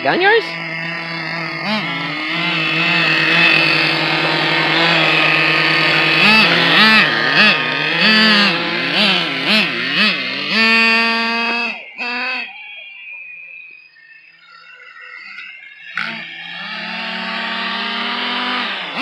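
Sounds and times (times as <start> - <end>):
rc car engine revving: 0.0 - 13.7, 15.1 - 19.0.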